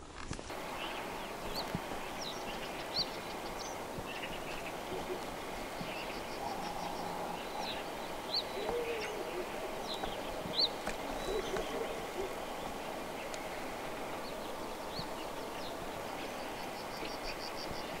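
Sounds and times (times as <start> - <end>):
steady background hiss: 0.0 - 18.0
songbirds chirping: 0.5 - 18.0
low wavering bird call: 4.3 - 12.6.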